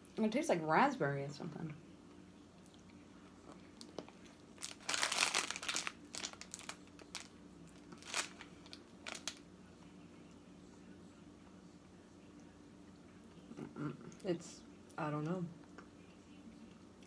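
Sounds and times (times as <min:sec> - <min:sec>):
plastic candy wrapper crinkling: 0:03.8 - 0:09.4.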